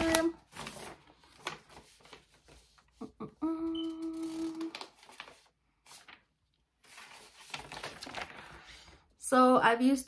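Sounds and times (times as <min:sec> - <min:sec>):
woman humming: 0:03.0 - 0:04.8.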